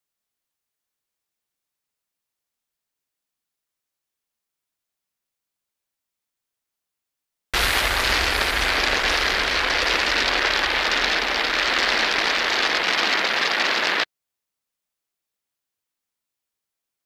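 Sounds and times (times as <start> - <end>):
loud steady hiss: 7.6 - 14.0.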